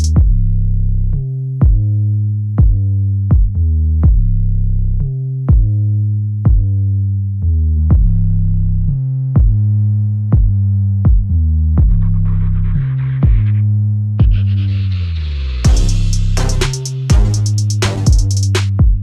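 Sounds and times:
drum machine beat: 0.0s - 0.4s, 1.6s - 1.9s, 2.6s - 4.3s, 5.5s - 5.8s, 6.5s - 6.8s, 7.9s - 8.2s, 9.4s - 9.7s, 10.3s - 13.6s, 14.2s - 14.6s, 15.6s - 19.0s
deep synth bass: 0.0s - 19.0s.

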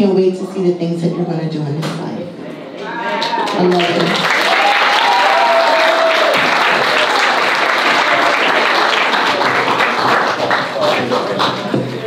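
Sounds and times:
audience applauding: 3.1s - 12.0s.

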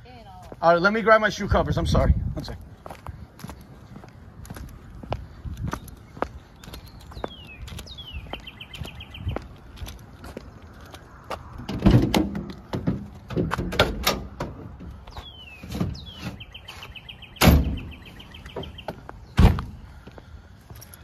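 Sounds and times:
vehicle doors slamming shut: 11.7s - 14.9s, 17.4s - 18.7s, 19.4s - 19.8s.

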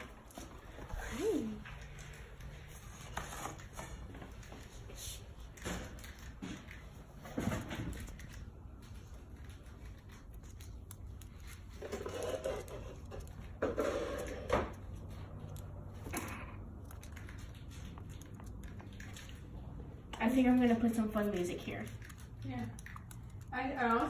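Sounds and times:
claws ticking on wooden floor: 14.6s - 24.0s.

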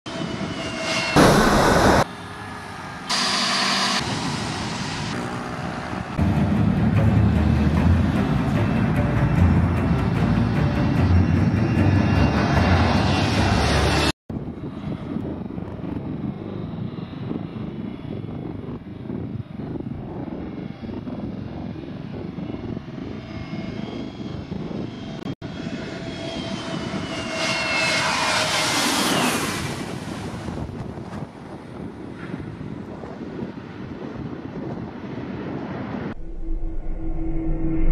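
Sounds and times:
high engine whine: 0.1s - 37.9s
jet engine noise: 0.1s - 37.9s.

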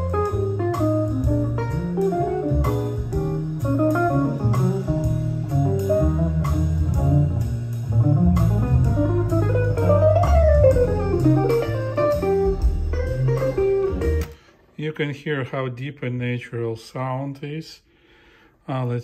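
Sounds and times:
bass-heavy song with plucked guitar: 0.0s - 14.4s.

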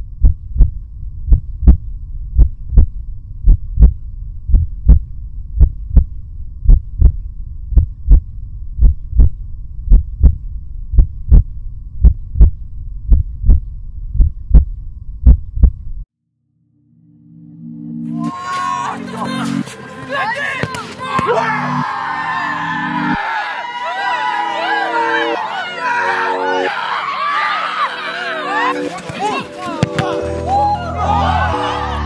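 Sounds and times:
low steady hum: 0.0s - 16.0s
heartbeat thumps: 0.0s - 16.1s.

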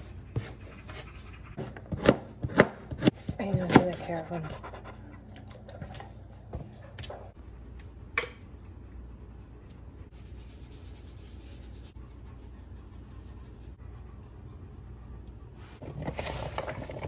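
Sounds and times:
knife chopping on cutting board: 1.6s - 4.0s
seasoning shaken from shaker: 10.1s - 13.8s.

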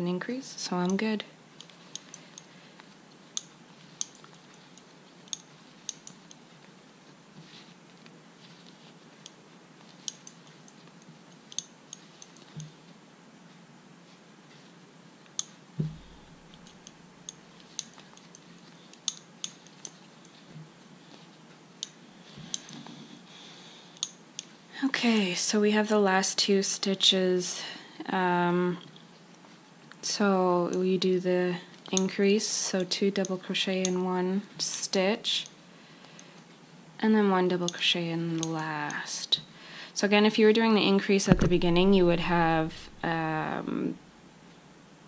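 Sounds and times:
soft bump: 15.8s - 16.2s.

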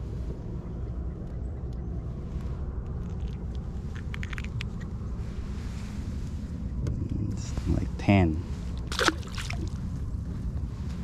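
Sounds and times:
wind rumble on microphone: 0.0s - 11.0s
small clicks and crackles: 1.2s - 5.0s.

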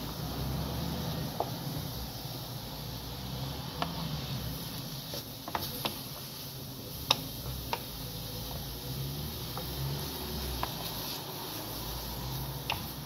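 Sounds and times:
spatula scraping frying pan: 8.4s - 13.0s.

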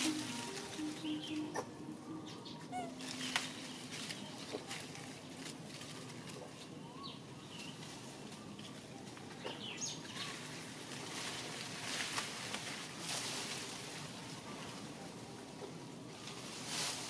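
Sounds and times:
bird chirps: 0.0s - 4.5s
outdoor background hiss: 0.0s - 17.0s.

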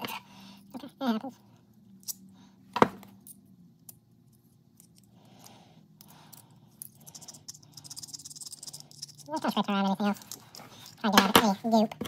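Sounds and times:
metal wrench parts scraping: 3.2s - 11.3s.

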